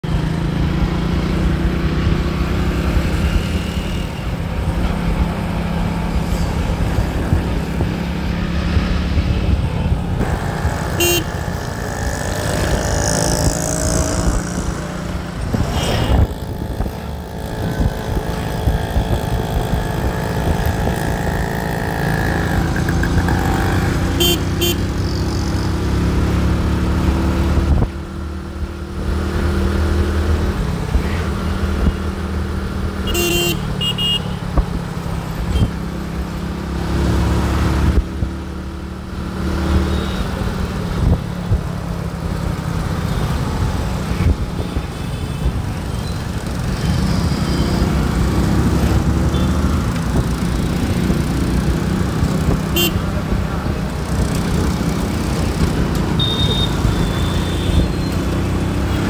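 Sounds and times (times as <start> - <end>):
vehicles passing: 0.0 - 59.0
car horns honking: 10.8 - 11.6, 24.1 - 24.8, 33.1 - 34.4, 52.7 - 53.0, 56.1 - 58.0.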